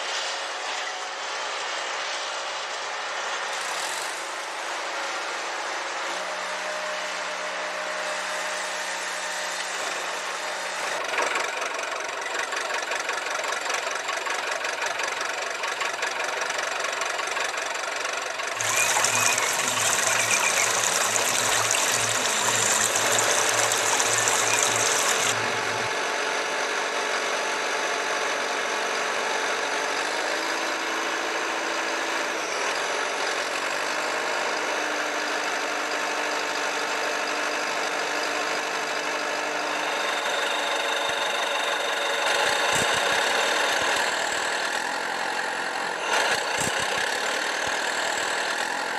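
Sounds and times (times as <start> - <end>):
engine running: 2.6 - 34.5.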